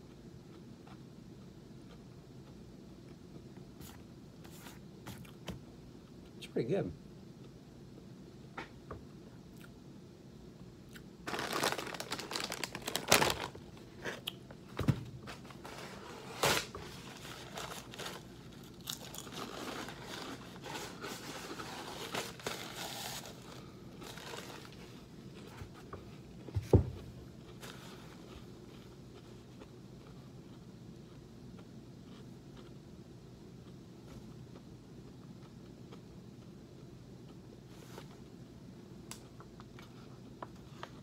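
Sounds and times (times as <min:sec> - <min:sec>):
plastic bag crinkling: 0:11.2 - 0:13.8, 0:16.4 - 0:24.9
crunchy snack chewing: 0:17.3 - 0:20.6
thump: 0:26.6 - 0:27.0.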